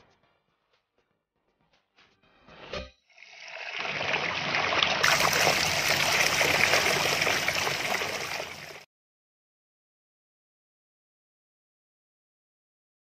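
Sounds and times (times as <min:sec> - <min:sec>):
running water stream: 0:03.3 - 0:08.9.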